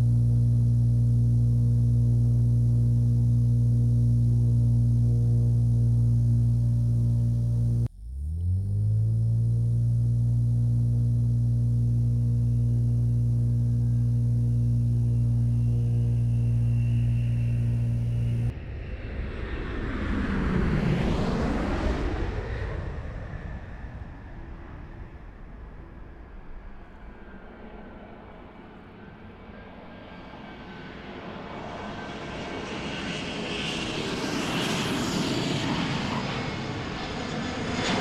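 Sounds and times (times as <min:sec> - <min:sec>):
turboprop propellers droning: 0:00.0 - 0:18.5, 0:27.0 - 0:38.0
jet airliner climbing away: 0:29.9 - 0:38.0.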